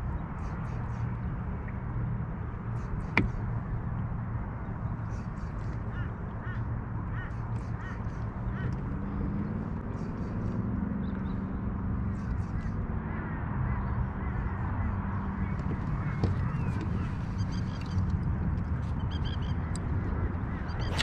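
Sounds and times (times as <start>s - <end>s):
birds harsh calls: 5.0s - 10.7s, 12.1s - 18.2s, 18.8s - 21.0s.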